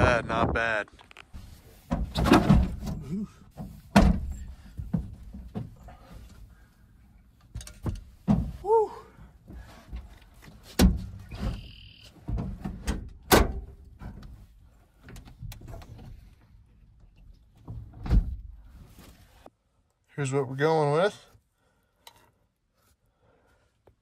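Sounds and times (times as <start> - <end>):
thumps of person climbing: 1.8 - 6.5, 7.5 - 11.6.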